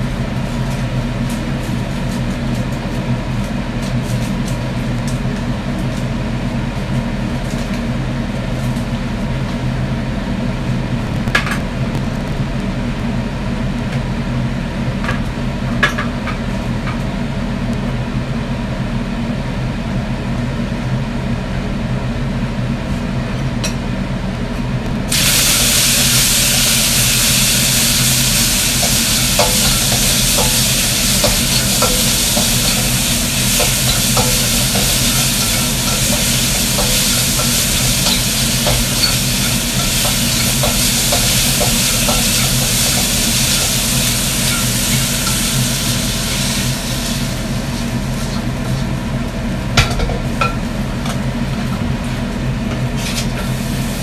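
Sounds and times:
steady low hum: 9.8s - 14.3s, 23.9s - 53.0s
loud sizzling hiss: 10.6s - 13.2s, 24.8s - 48.3s.

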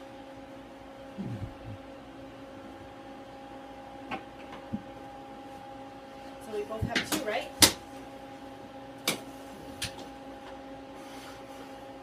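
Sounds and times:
blower fan hum: 0.0s - 12.0s.

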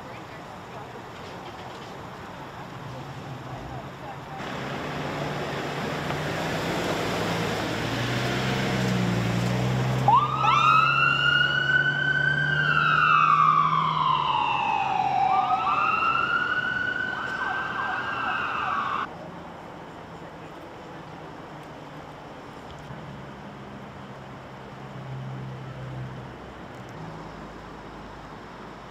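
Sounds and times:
ambulance engine running: 0.0s - 22.6s
siren chirping and wailing: 10.1s - 19.1s.

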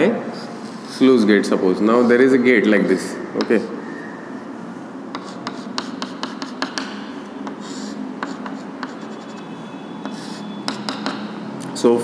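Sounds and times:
chalk tapping on blackboard: 5.1s - 9.4s, 10.0s - 11.4s
chalk scratching: 5.1s - 11.2s.

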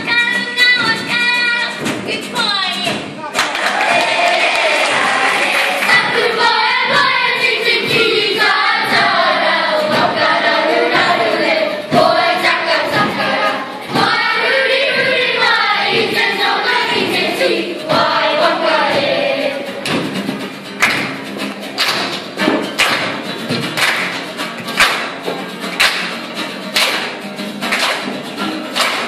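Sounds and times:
children singing in unison: 3.5s - 20.1s.

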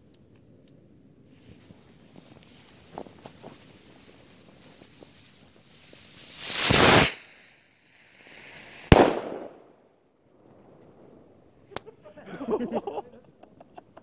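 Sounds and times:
firework rocket whoosh: 1.3s - 9.9s
firework bang: 4.7s - 7.5s, 8.3s - 9.8s.

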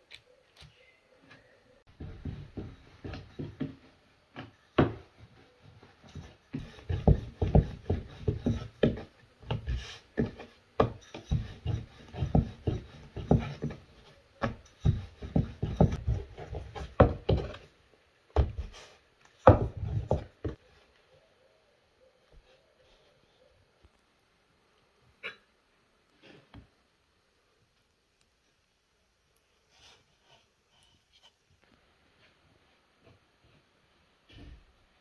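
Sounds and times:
rolling pin knocking on wooden board: 6.5s - 17.6s.

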